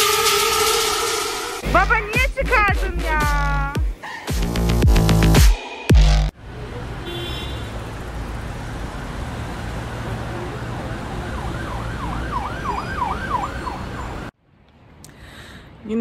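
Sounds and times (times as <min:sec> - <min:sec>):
siren yelping: 0:10.5 - 0:14.3.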